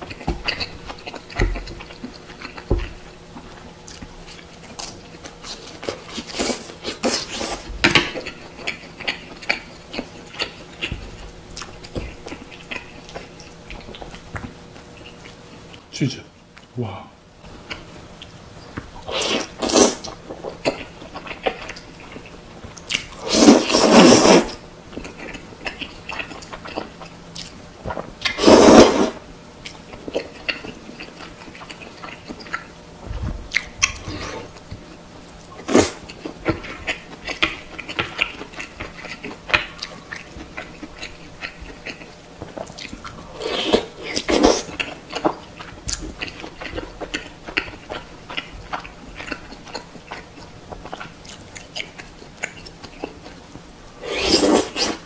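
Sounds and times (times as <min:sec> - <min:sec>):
wet chewing: 0:17.6 - 0:32.7, 0:33.4 - 0:53.4
loud slurps: 0:19.1 - 0:20.0, 0:23.2 - 0:24.6, 0:28.3 - 0:29.2, 0:54.0 - 0:55.0.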